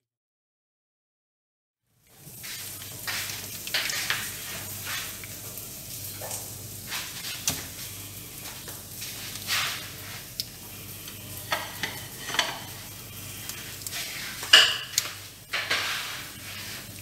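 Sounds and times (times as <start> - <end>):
steady hiss and hum: 2.0 - 17.0
wet crackling: 12.7 - 17.0.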